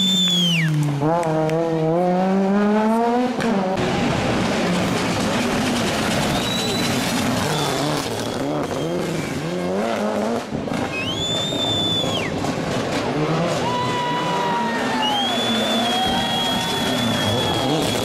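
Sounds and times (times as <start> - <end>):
rally car engine revving: 0.1 - 18.0.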